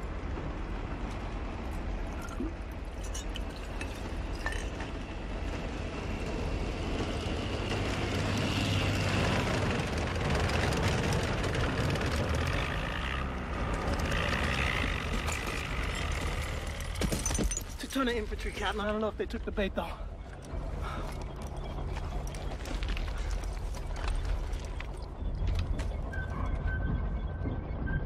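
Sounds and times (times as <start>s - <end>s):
tank engines rumbling: 0.0s - 28.0s
tracks squealing and clanking: 4.8s - 17.6s.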